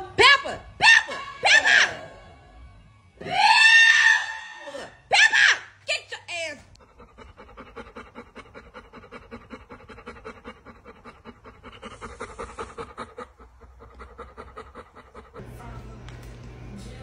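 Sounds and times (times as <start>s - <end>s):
dog panting rapidly: 6.6s - 15.8s.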